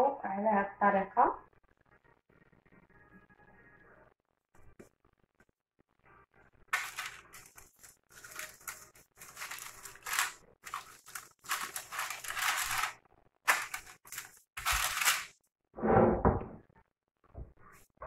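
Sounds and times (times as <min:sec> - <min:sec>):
parchment paper rustling: 0:06.7 - 0:15.4.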